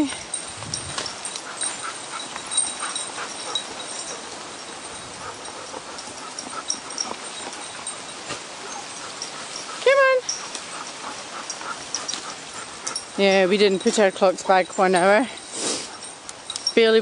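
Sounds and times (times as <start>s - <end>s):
dry leaves rustling underfoot: 0.0s - 17.0s
faint dog whining: 5.2s - 13.1s.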